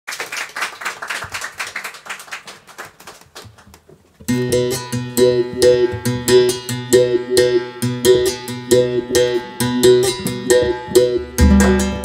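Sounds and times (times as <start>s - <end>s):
applause: 0.1s - 3.9s
acoustic guitar picking: 4.3s - 12.0s.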